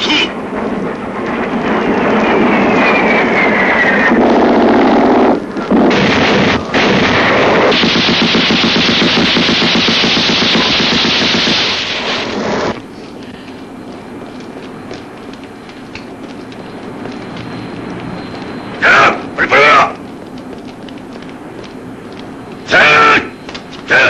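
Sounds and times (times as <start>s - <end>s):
falling jet whine: 0.0s - 15.2s, 16.0s - 20.1s
explosions: 1.2s - 12.7s
rapid machine-gun fire: 5.9s - 12.4s.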